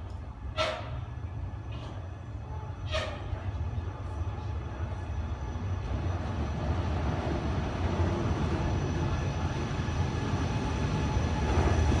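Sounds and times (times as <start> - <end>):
train rolling with low rumble: 0.0 - 12.0.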